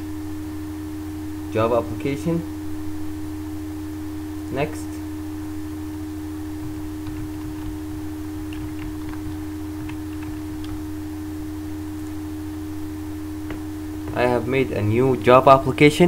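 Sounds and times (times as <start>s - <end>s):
electrical hum: 0.0s - 16.0s
keyboard keys clicking: 6.6s - 11.0s.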